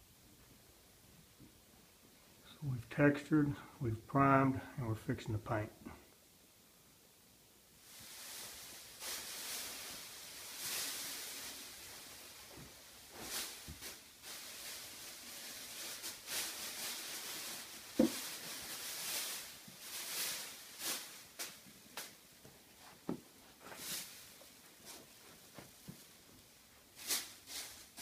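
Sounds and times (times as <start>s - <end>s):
plastic sheeting crinkling: 7.8s - 28.0s.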